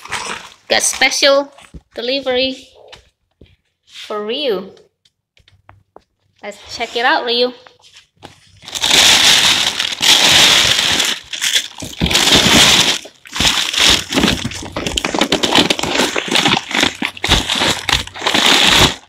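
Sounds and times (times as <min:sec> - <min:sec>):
plastic bag rustling: 0:07.8 - 0:19.0
packing paper crinkling: 0:08.1 - 0:19.0.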